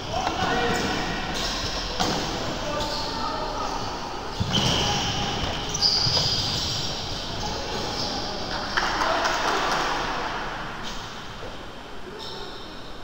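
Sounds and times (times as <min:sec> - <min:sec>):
voices in a hall: 0:00.0 - 0:13.0
ball bouncing on hard court: 0:04.4 - 0:06.7.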